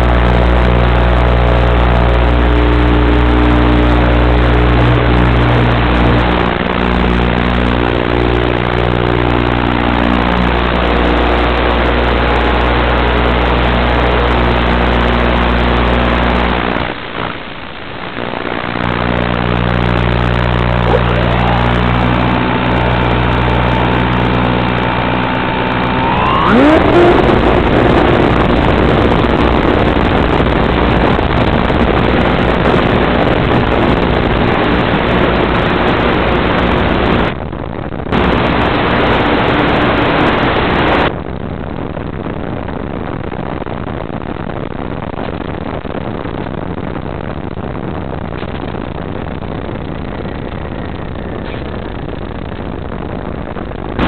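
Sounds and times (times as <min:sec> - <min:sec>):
plane motor and propeller: 0:00.0 - 0:41.1
steady electrical buzz: 0:00.0 - 0:54.0
electric motor whining: 0:19.1 - 0:31.1.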